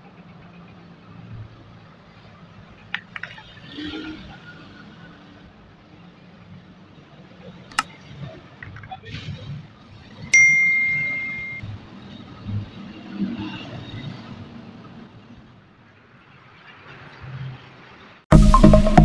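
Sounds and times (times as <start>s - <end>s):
bright bell ding: 10.4s - 11.6s.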